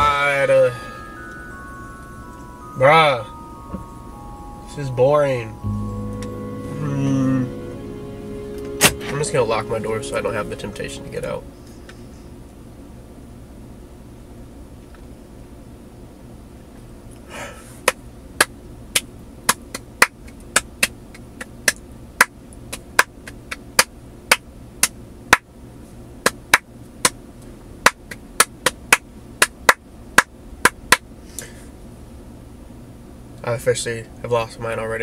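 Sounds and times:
brief rushing sound: 0:05.4 - 0:12.1.

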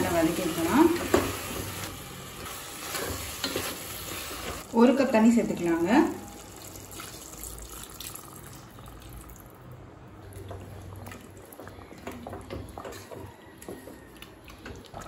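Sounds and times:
water pouring into a pot: 0:06.3 - 0:09.6.

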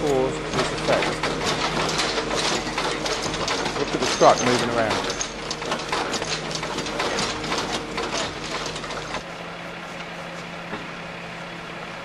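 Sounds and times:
mechanical clattering and rattling: 0:00.0 - 0:09.3
truck engine hum: 0:00.0 - 0:12.0.

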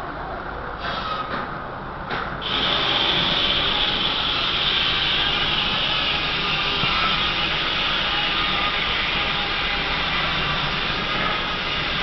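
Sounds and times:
sawmill machinery running: 0:02.4 - 0:12.0.

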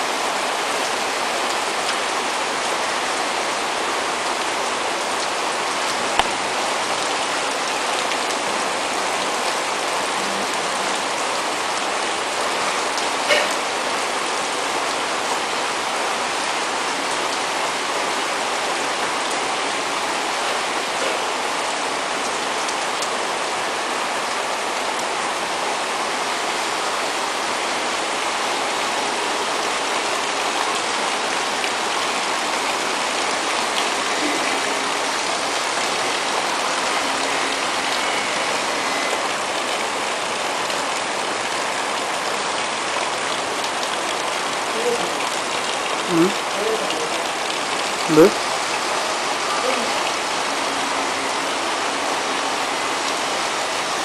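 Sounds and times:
steady rainfall: 0:00.0 - 0:54.0
raindrop taps: 0:06.2 - 0:06.4.

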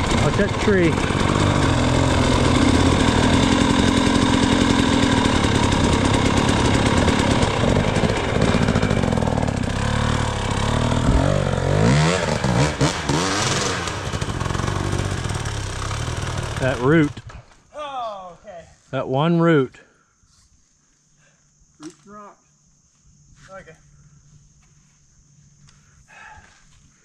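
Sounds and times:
dirt bike engine revving: 0:00.0 - 0:17.4.

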